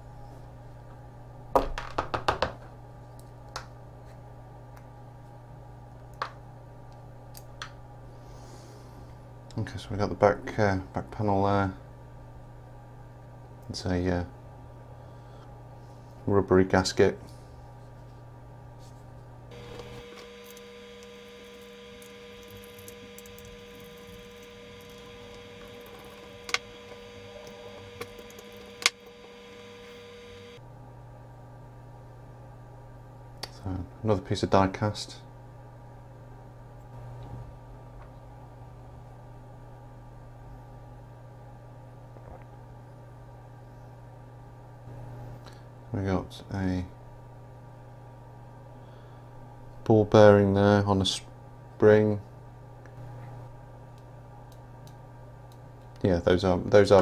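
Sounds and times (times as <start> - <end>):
electrical hum: 0.0 - 57.0
low hum: 17.2 - 34.1.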